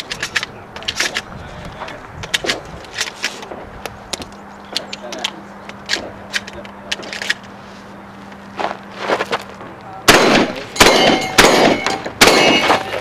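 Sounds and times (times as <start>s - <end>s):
shotgun shots: 10.1s - 13.0s
steel targets ringing: 10.1s - 13.0s.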